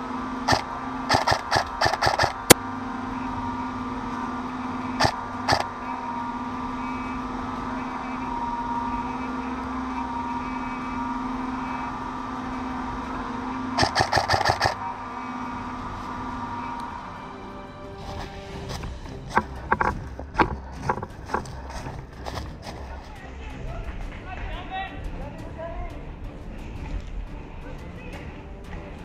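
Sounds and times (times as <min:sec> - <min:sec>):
steady hum: 0:00.0 - 0:23.5
airsoft gun firing: 0:00.5 - 0:02.6, 0:05.0 - 0:05.7, 0:13.8 - 0:14.8.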